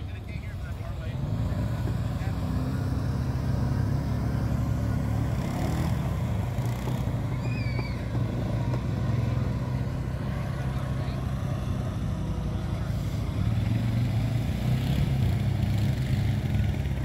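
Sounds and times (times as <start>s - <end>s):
vehicle engine idling: 0.0s - 17.0s
wavering high chirp: 7.3s - 8.1s.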